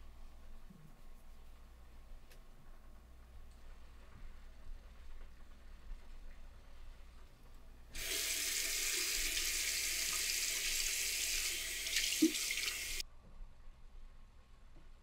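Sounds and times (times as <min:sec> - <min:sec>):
sink tap running: 0:08.0 - 0:13.0.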